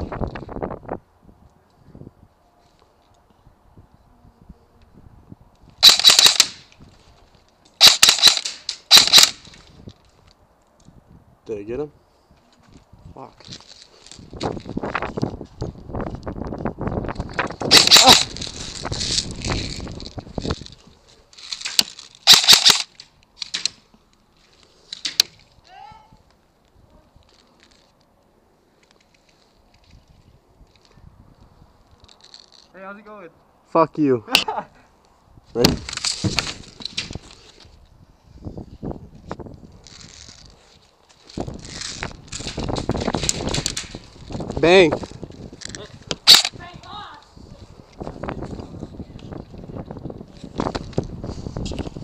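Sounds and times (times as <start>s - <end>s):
airsoft gun full-auto bursts: 5.8s - 6.6s, 7.8s - 9.4s, 22.2s - 22.9s.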